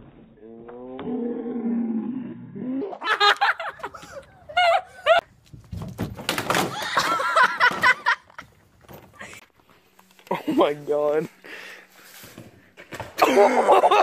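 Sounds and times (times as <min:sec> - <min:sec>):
plastic toy cars crashing: 0:05.8 - 0:08.1.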